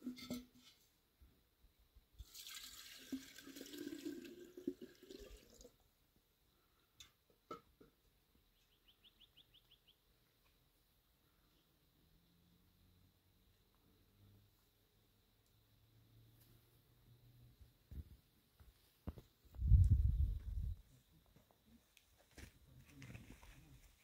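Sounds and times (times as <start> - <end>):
water pouring and splashing: 2.2 - 5.7.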